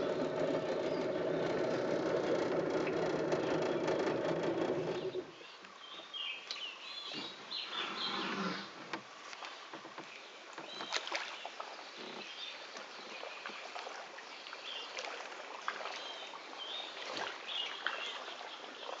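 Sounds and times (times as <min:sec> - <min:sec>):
light clicks and knocks: 0:00.0 - 0:05.3
water lapping around a boat: 0:00.0 - 0:06.1, 0:08.6 - 0:19.0.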